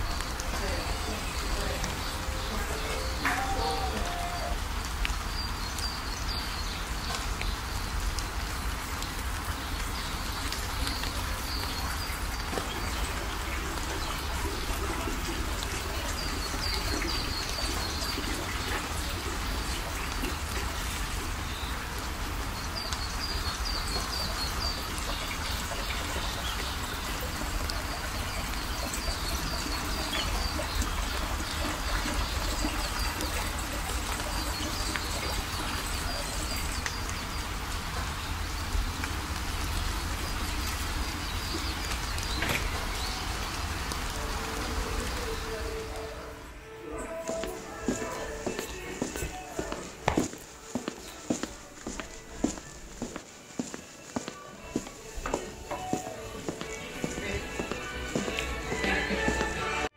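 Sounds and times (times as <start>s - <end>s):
small birds chirping: 0.0s - 38.8s
water trickling into a pond: 0.0s - 46.3s.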